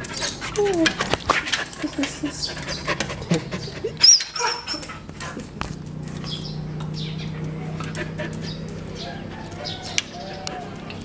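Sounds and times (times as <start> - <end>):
dog whining: 1.8 - 5.4.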